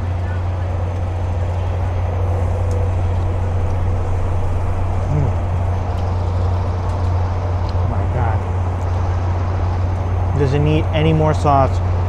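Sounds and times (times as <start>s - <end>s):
engine idling: 0.0s - 12.0s
even wash of noise: 0.0s - 12.0s
faint clicks: 2.6s - 2.8s.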